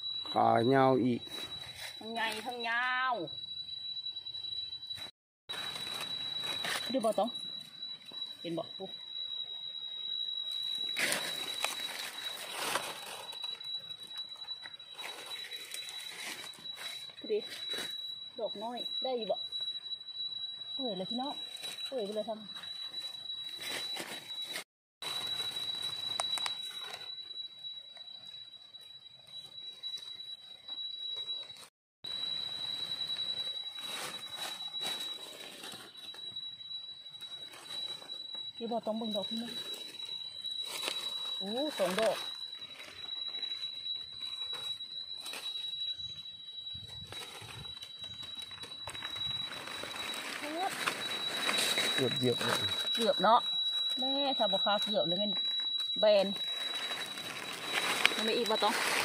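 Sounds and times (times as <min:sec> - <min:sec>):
steady high-pitched tone: 0:00.0 - 0:59.0
dry leaves rustling and crackling: 0:05.5 - 0:07.5, 0:10.8 - 0:17.9, 0:23.0 - 0:27.0, 0:32.4 - 0:36.3, 0:37.4 - 0:45.6, 0:46.8 - 0:55.1, 0:56.0 - 0:59.0.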